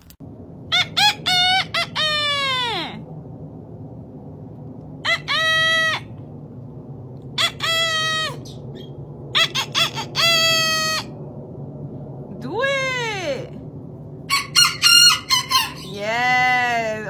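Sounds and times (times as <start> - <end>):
rooster crowing: 14.3 - 16.0.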